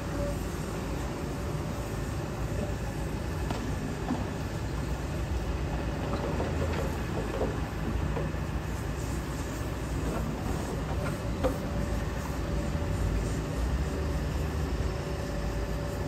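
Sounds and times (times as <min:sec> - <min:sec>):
excavator diesel engine rumble: 0:00.0 - 0:16.0.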